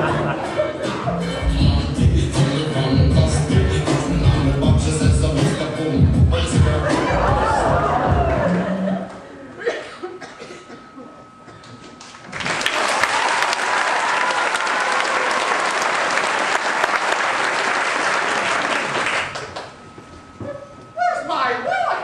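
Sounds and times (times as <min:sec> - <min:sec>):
audience applauding: 0:12.0 - 0:19.8.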